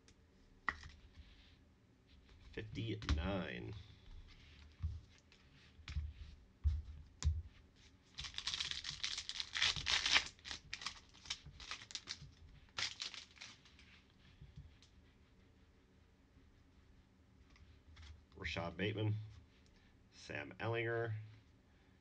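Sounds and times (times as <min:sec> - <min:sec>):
foil wrapper tearing and crinkling: 0:08.2 - 0:13.7.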